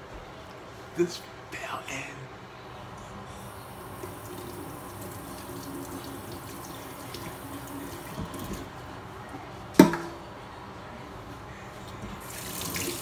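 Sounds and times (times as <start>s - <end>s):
tap water running into sink: 3.5s - 8.7s, 12.2s - 13.0s.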